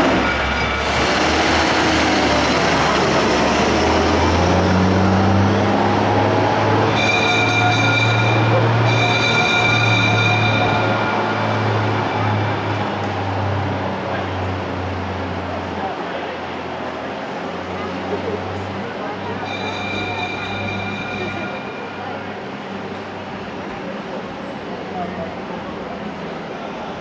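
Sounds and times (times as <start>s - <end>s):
fire engines driving past: 0.0s - 27.0s
fire engine bell ringing: 6.7s - 13.3s, 19.2s - 22.4s.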